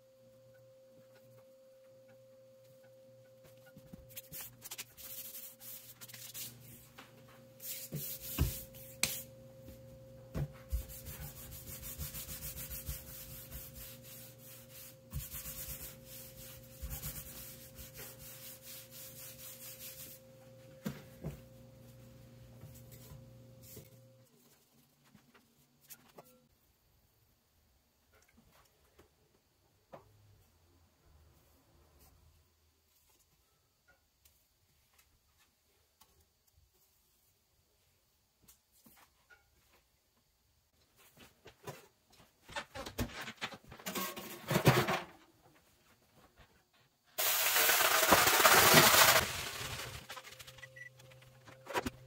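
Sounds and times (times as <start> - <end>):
faint steady hum: 0.0 - 42.5
hands rubbing dough on countertop: 4.1 - 9.3, 10.5 - 20.4.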